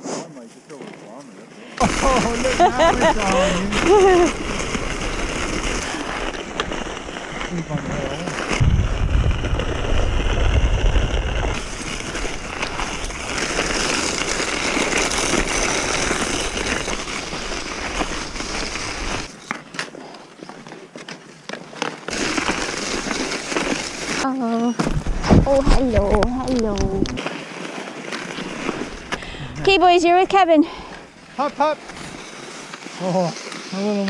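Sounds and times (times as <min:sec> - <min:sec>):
skis scraping on snow: 0:00.0 - 0:24.3, 0:25.0 - 0:34.0
wind rumbling on microphone: 0:02.8 - 0:19.3, 0:24.9 - 0:27.2.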